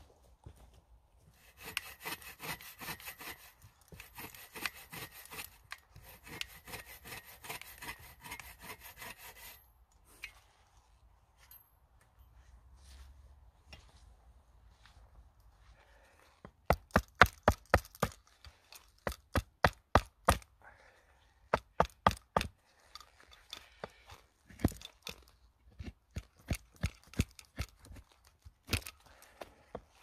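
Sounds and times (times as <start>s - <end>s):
hatchet chopping wood: 1.4s - 9.6s, 16.6s - 18.3s, 19.0s - 20.5s, 21.5s - 22.6s, 25.7s - 28.9s.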